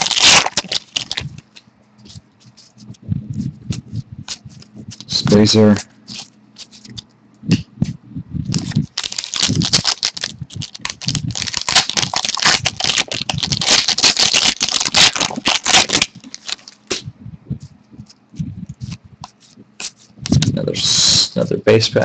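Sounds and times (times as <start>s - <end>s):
card pack crackling and crinkling: 0.0s - 3.0s, 8.5s - 17.0s.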